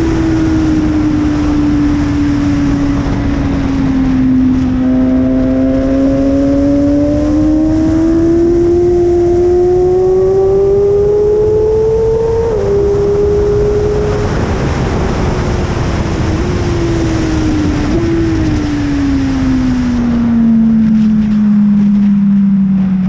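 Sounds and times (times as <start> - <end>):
motorcycle engine revving: 0.0 - 23.0
wind noise: 0.0 - 23.0.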